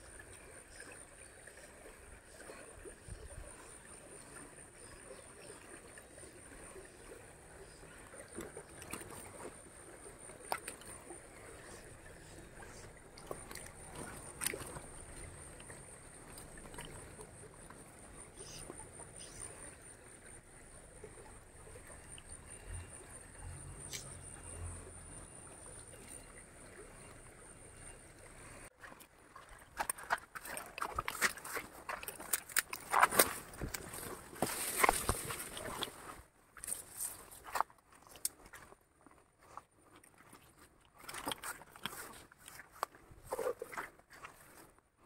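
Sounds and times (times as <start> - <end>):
stream water over stones: 0.0 - 45.0.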